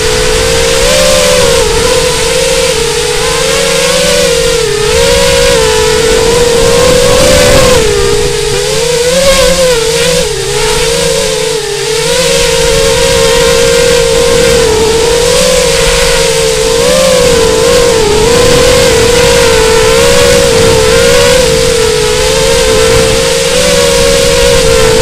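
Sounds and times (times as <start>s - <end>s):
quadcopter motors whining: 0.0s - 25.0s.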